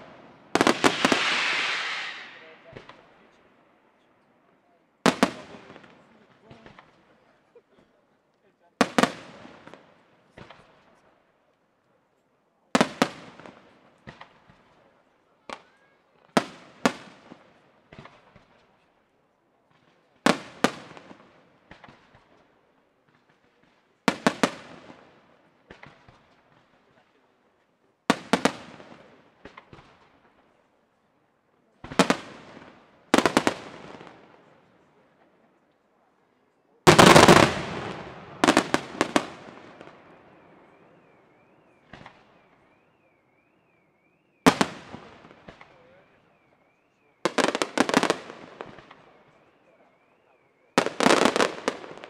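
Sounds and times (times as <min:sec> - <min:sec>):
firework bangs with crackle: 0:00.0 - 0:03.4, 0:05.0 - 0:06.9, 0:12.8 - 0:14.9, 0:16.4 - 0:18.6, 0:19.7 - 0:22.4, 0:23.0 - 0:26.8, 0:28.1 - 0:30.4, 0:31.8 - 0:34.4, 0:36.9 - 0:41.2, 0:41.8 - 0:42.5, 0:44.4 - 0:46.1, 0:47.3 - 0:49.5, 0:50.8 - 0:52.0
wavering high whistle: 0:01.0 - 0:02.7.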